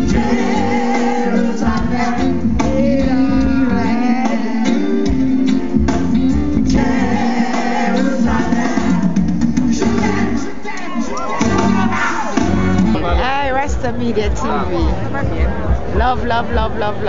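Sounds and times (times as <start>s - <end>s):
person singing: 0.0s - 5.3s
reggae band playing: 0.0s - 17.0s.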